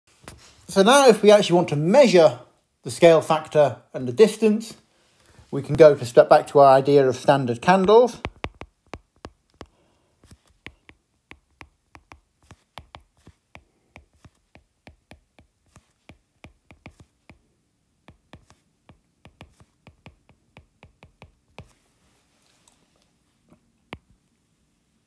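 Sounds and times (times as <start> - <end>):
stylus tapping on glass screen: 8.2 - 17.4, 18.0 - 21.7.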